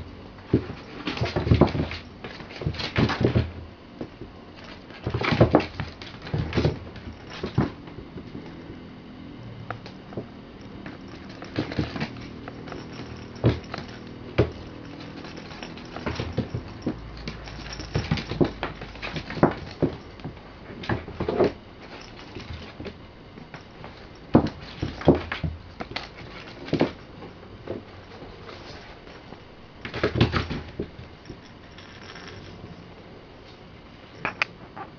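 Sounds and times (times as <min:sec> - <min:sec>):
kittens thumping on wooden floor: 0:00.5 - 0:08.6, 0:09.8 - 0:27.0, 0:29.8 - 0:31.4.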